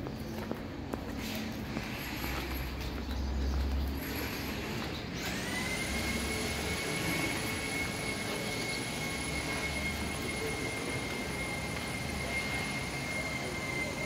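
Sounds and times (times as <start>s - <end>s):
high-pitched machine whine: 3.9s - 14.0s.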